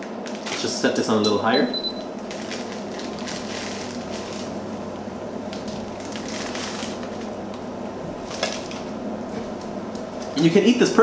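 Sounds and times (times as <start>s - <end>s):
plastic wrappers crinkling: 0.0s - 1.1s, 2.2s - 4.6s, 5.5s - 7.6s, 8.2s - 10.4s
low steady hum: 0.0s - 11.0s.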